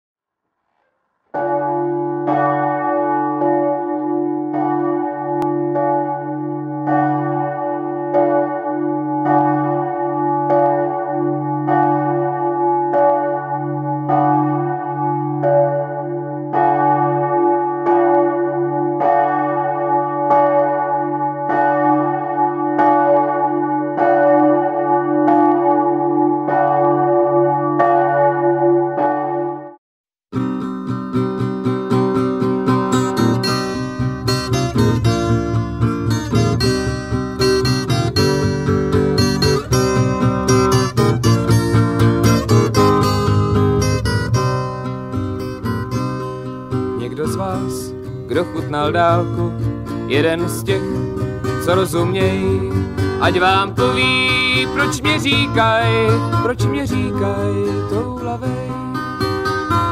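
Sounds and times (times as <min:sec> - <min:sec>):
church bells ringing: 0:01.3 - 0:29.8, 0:31.6 - 0:59.9.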